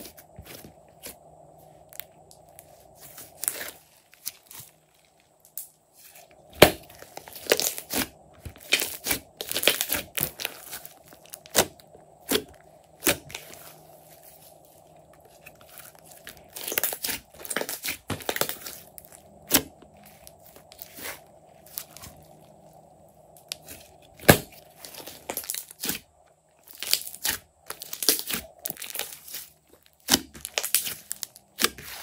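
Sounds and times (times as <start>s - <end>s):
slime crackling and popping: 6.5s - 22.2s, 23.4s - 26.0s, 26.6s - 32.0s.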